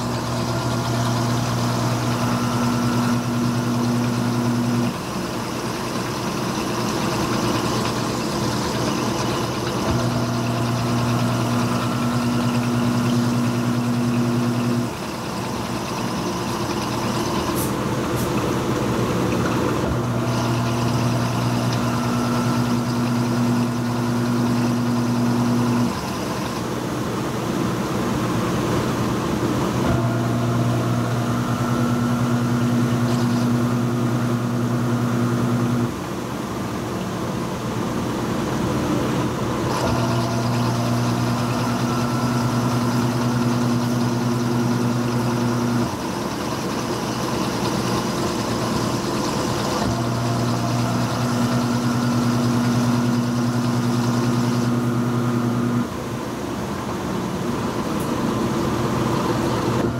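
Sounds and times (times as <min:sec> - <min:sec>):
washing machine motor humming: 0:00.0 - 0:59.9.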